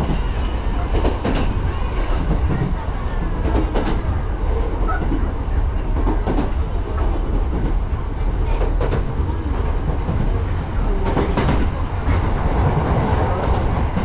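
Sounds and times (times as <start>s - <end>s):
train rumble inside a car: 0.0s - 14.0s.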